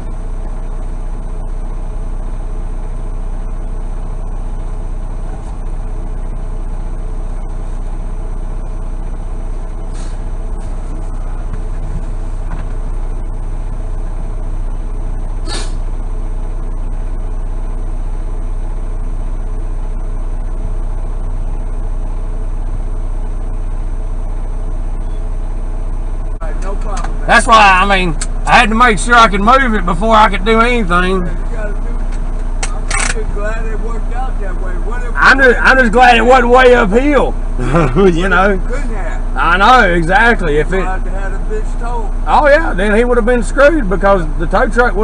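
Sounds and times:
diesel engine idling: 0.0 - 45.0
air hiss: 9.9 - 10.3, 15.4 - 15.9.

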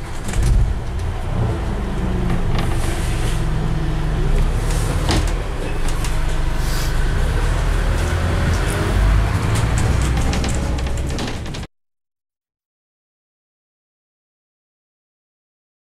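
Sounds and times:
bodywork knocks and rattles: 0.0 - 1.2, 7.6 - 11.7
bus diesel engine under load: 0.0 - 11.7.

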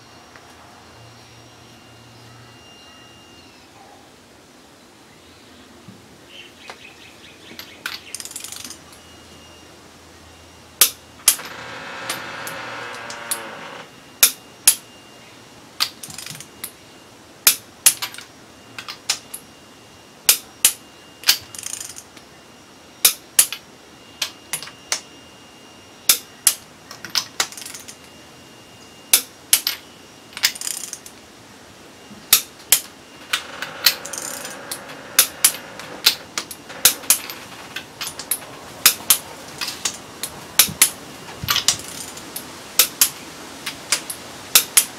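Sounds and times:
wrench clicking on bolts: 41.5 - 42.1.

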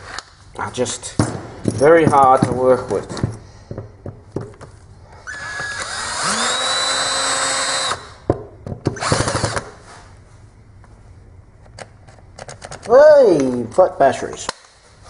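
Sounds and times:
cordless drill motor whining: 5.2 - 8.2, 9.0 - 9.7.

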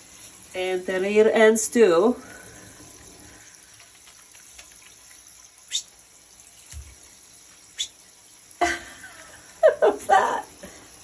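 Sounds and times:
hands lathering wet fur: 3.0 - 5.9.

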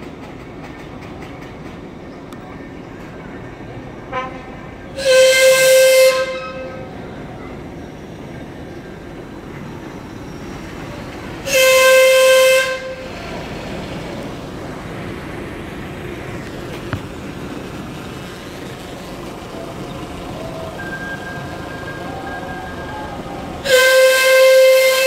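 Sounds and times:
steam whistle blasts: 5.0 - 6.8, 11.5 - 13.1, 20.8 - 25.0.

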